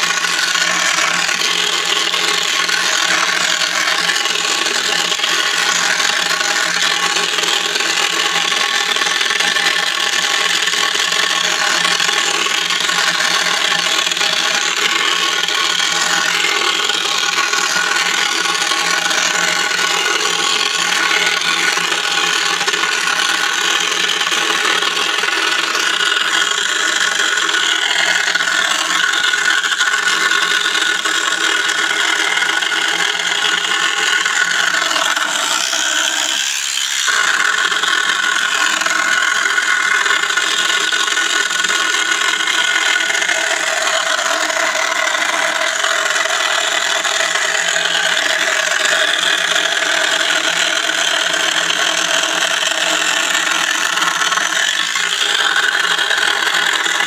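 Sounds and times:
toy car electric motor whining: 0.0 - 57.0.

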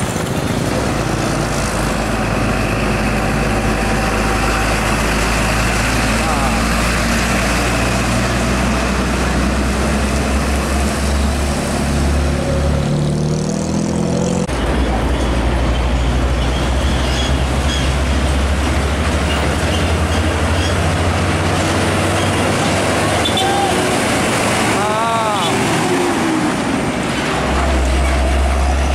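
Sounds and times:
truck diesel engine droning: 0.0 - 28.9
truck diesel engine passing: 0.0 - 28.9.

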